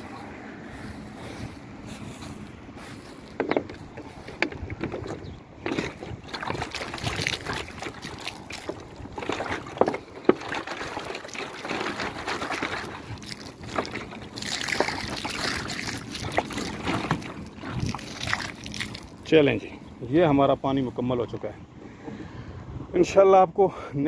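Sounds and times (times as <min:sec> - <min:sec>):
water splashing onto dirt and leaves: 0:06.2 - 0:19.3.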